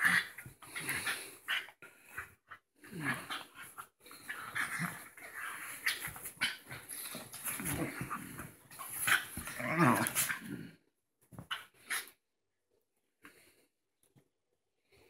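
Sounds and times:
small dogs growling: 0.0s - 10.8s.

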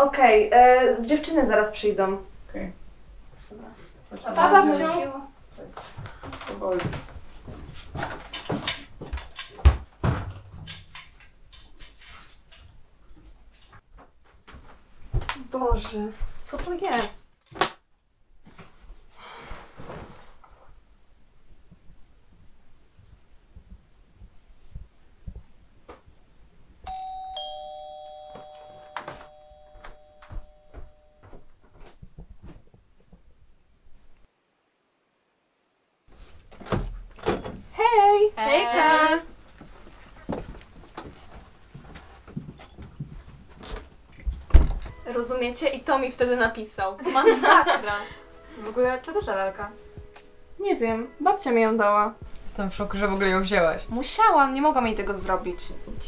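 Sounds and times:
footsteps on wooden floorboards: 5.8s - 10.3s, 39.4s - 45.0s
two-note doorbell chime: 26.9s - 31.4s.

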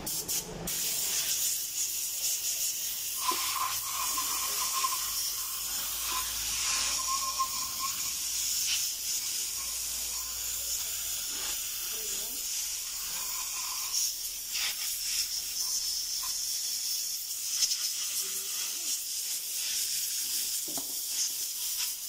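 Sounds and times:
compressed air spray gun hissing: 0.0s - 22.0s
faint whistle: 6.7s - 8.1s.

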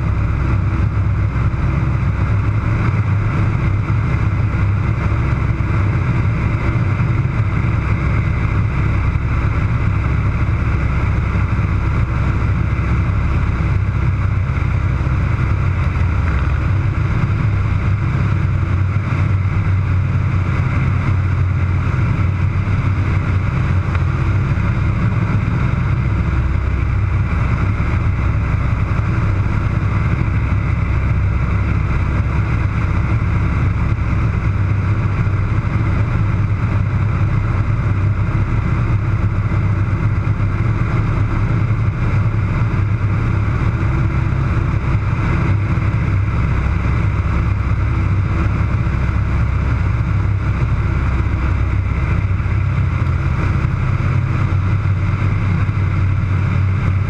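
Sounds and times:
radial engine and propeller drone: 0.0s - 57.0s.

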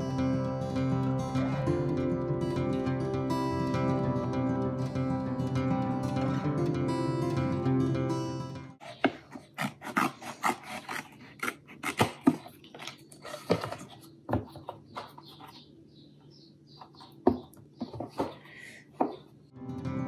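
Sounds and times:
scissors snipping carton: 8.8s - 14.0s
carton handling: 8.8s - 15.7s.

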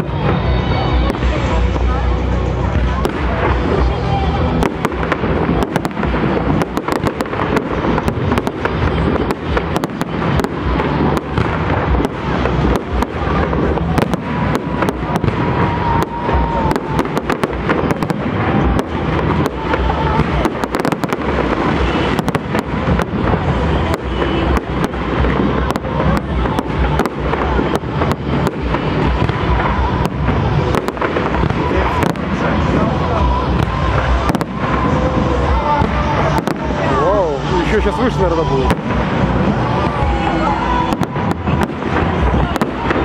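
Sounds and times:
fireworks cracks and bangs: 0.0s - 43.0s.

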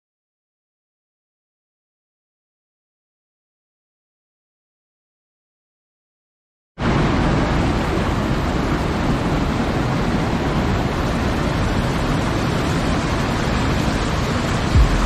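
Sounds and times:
waterfall cascading into a pool: 6.8s - 15.0s.

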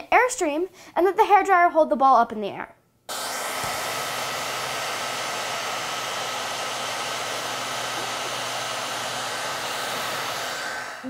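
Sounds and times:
hair dryer blowing: 3.1s - 11.0s.

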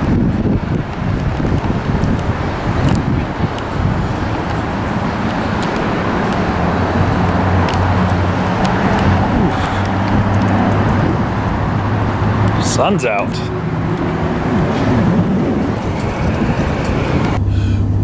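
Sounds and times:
road traffic noise: 0.0s - 18.0s
low even hum: 17.4s - 18.0s.

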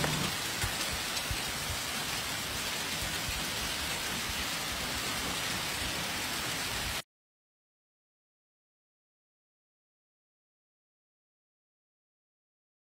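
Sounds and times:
hail thuds: 0.0s - 7.0s
heavy rain and hail hissing: 0.0s - 7.0s.

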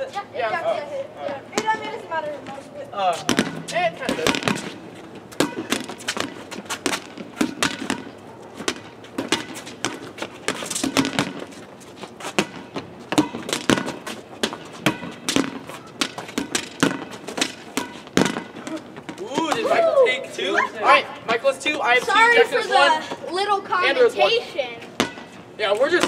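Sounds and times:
sneakers scuffing on pavement: 1.2s - 19.7s
ball bouncing on asphalt: 1.2s - 19.8s, 24.8s - 26.0s
ball smacking against wall: 3.2s - 4.7s, 5.3s - 11.4s, 12.3s - 19.7s.

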